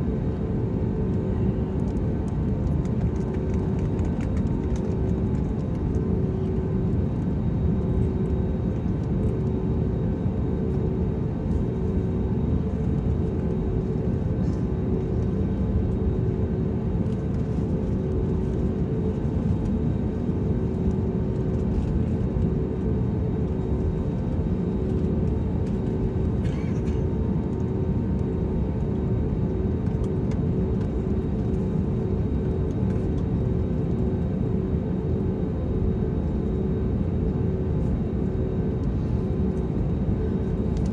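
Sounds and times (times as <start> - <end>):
airliner engines idling rumble: 0.0 - 40.9.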